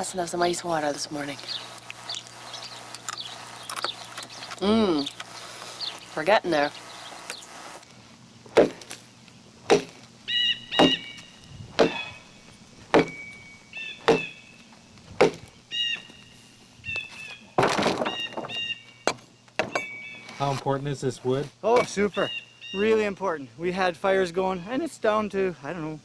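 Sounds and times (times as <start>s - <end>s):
axe chopping into log: 8.5s - 9.0s, 9.7s - 10.0s, 10.8s - 11.1s, 11.8s - 12.1s, 12.9s - 13.2s, 14.0s - 14.3s, 15.2s - 15.5s
branch crashing onto wagon: 17.2s - 18.7s.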